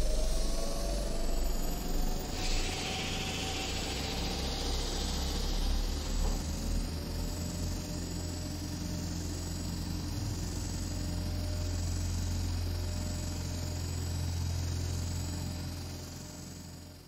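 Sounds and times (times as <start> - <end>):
low engine hum: 0.0 - 13.6.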